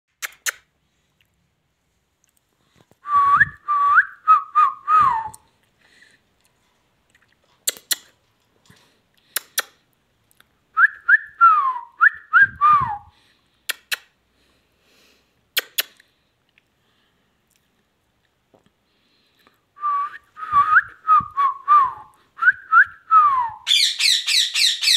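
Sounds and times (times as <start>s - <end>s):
parakeet whistling a tune: 23.5s - 24.9s.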